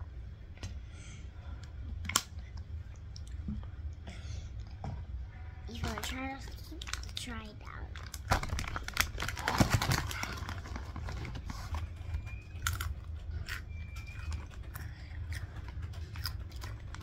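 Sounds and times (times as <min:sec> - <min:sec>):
crackers crunching: 0:05.7 - 0:17.0.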